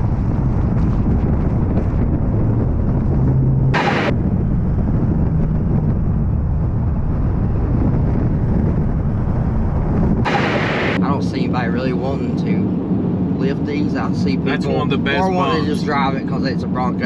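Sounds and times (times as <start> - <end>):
car engine and road rumble: 0.0 - 17.0
brief sharp burst: 3.8 - 4.2, 10.3 - 11.0.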